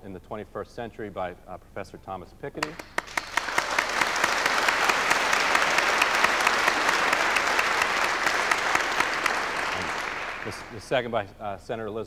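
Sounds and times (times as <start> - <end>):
audience applause: 2.6 - 11.0.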